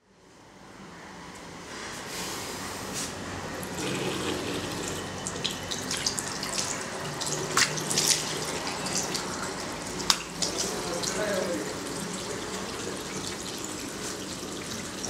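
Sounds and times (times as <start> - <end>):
tap water running into basin: 3.5 - 15.0
water splashes: 3.7 - 15.0.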